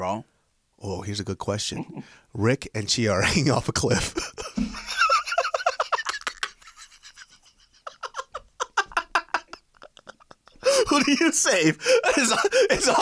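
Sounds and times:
man laughing hard: 0:04.0 - 0:13.0.

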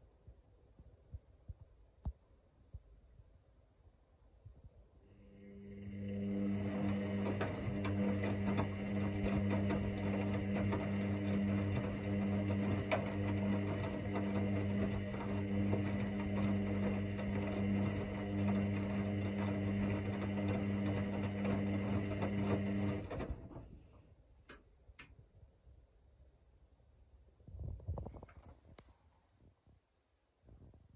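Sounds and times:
washing machine motor hum: 0:05.0 - 0:24.0.

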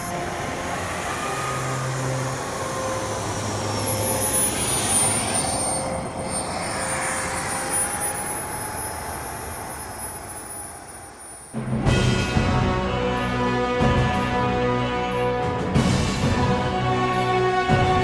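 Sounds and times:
model jet turbine whine: 0:00.0 - 0:11.8
rushing noise: 0:00.0 - 0:14.0.

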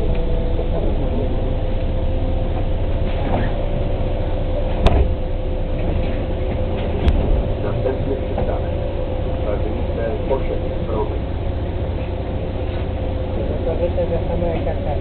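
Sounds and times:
bus engine idling: 0:00.0 - 0:15.0
thin steady whine: 0:00.0 - 0:15.0
sharp knocks: 0:04.8 - 0:05.2.

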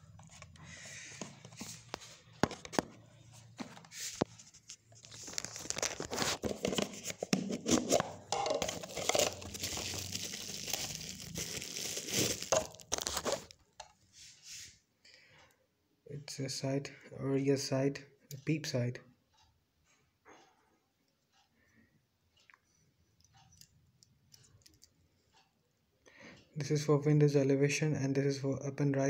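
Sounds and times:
plastic packaging crinkling: 0:03.6 - 0:13.6.

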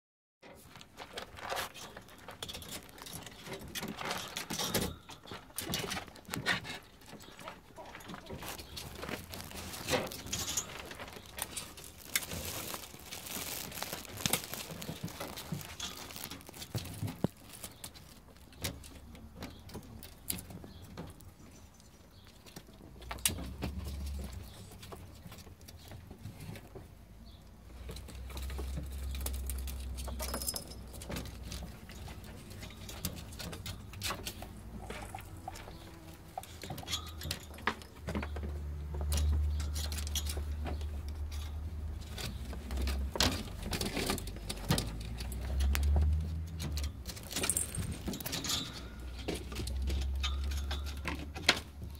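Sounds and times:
ferrets rustling in bedding: 0:05.6 - 0:19.6, 0:41.9 - 0:51.9.

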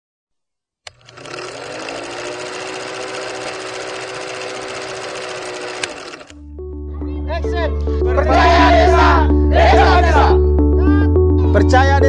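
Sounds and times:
film projector clattering: 0:00.9 - 0:06.4.

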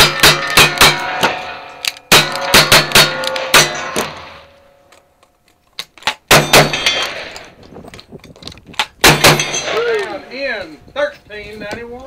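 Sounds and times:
rifle shots: 0:00.0 - 0:04.5, 0:06.1 - 0:07.5, 0:08.9 - 0:10.3
steel targets ringing: 0:00.0 - 0:04.9, 0:06.4 - 0:07.4, 0:09.1 - 0:10.5.

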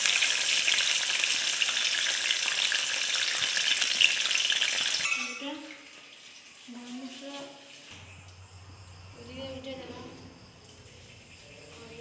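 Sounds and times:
onions sizzling in hot oil: 0:00.0 - 0:08.1.

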